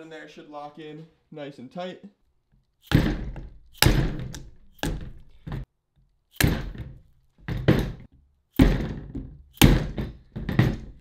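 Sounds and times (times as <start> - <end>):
mallet striking metal axle: 2.8 - 5.7, 6.4 - 11.0.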